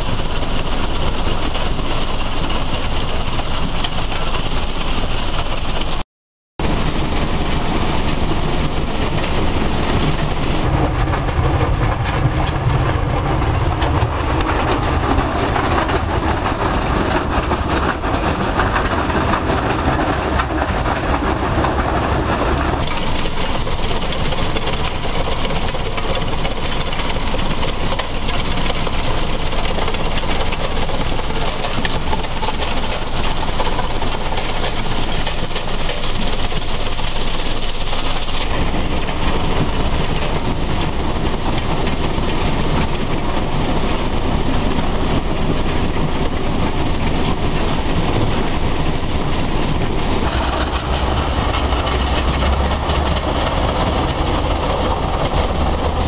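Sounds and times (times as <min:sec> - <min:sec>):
rock crusher clatter and rumble: 0:00.0 - 0:06.0, 0:06.6 - 0:56.0
deeper rumble: 0:06.6 - 0:27.3, 0:38.1 - 0:56.0.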